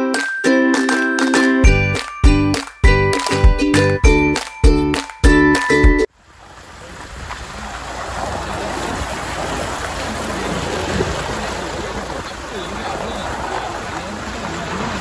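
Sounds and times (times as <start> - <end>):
tyres sloshing through water: 6.1 - 15.0.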